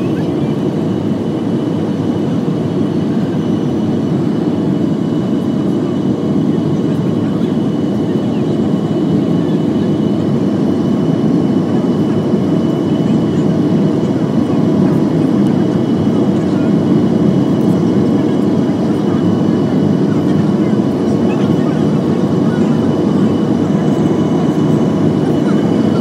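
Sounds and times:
airliner cabin rumble: 0.0 - 26.0.

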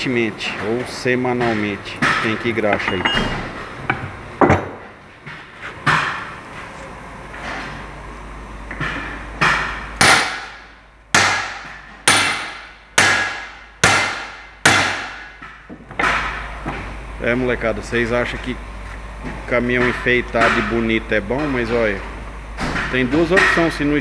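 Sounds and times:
hammer striking metal: 1.4 - 3.5, 8.8 - 16.4, 19.7 - 21.6, 22.6 - 23.9.

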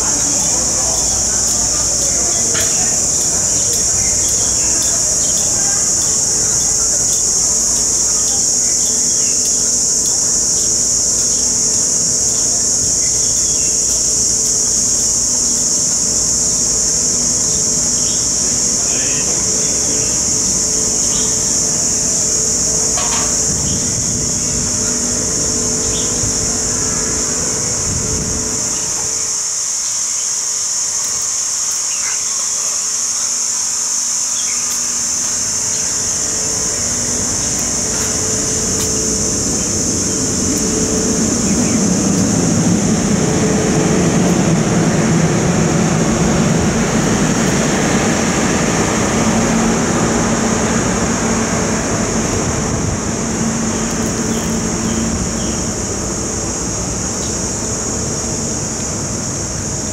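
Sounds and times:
high-pitched buzz: 34.6 - 59.9
low rumble: 35.8 - 55.9.

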